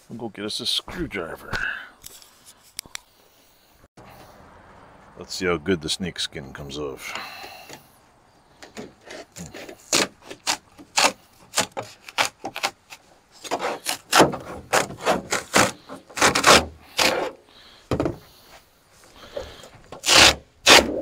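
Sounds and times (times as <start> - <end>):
screwdriver scraping sheet metal: 20.0 - 21.0.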